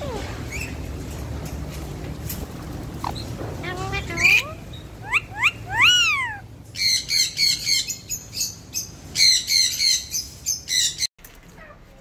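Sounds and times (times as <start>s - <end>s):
parakeets harsh chirps: 2.8s - 11.1s
parakeets whistling calls: 4.0s - 11.1s.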